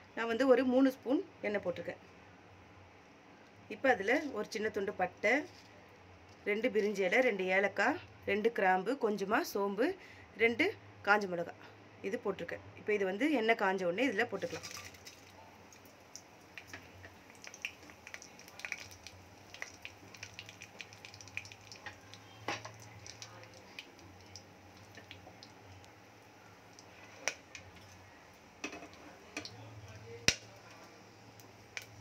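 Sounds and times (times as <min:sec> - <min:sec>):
spices sizzling in hot oil: 0:14.3 - 0:32.0
small crackles and pops: 0:14.4 - 0:32.0.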